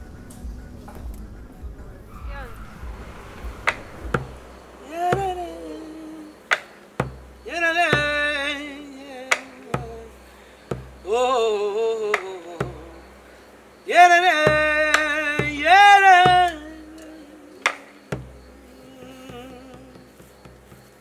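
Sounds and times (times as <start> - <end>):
bass drum beaten with sticks: 0.4 - 8.6, 9.7 - 11.1, 12.6 - 13.1, 14.5 - 16.8
man singing with vibrato: 4.5 - 20.4.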